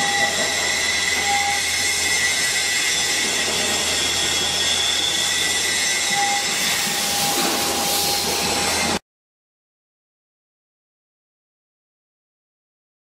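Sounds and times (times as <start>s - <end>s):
drilling machine hiss and hum: 0.0s - 9.0s
thin machine whine: 0.0s - 9.0s.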